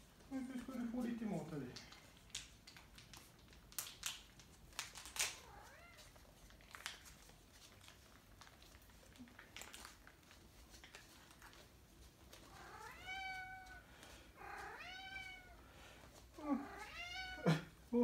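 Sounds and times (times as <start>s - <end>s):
cat meowing: 12.5s - 15.6s, 16.4s - 17.6s.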